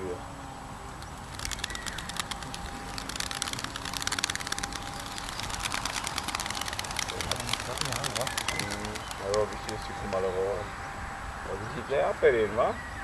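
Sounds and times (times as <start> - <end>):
pigeon wingbeats clicking: 1.0 - 10.4.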